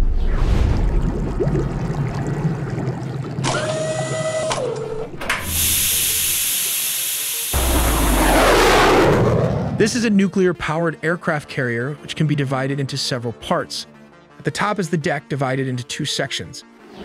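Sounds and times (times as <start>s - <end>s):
deep rumble: 0.0s - 3.4s, 7.6s - 10.0s
steam hissing: 5.4s - 7.6s.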